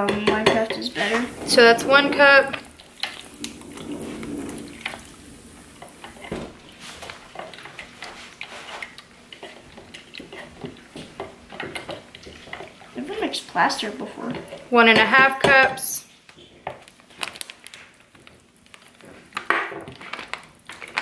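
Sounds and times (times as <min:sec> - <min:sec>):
stick tapping and scraping in a tub: 0:00.0 - 0:17.0
foil bag rustling: 0:16.9 - 0:21.0.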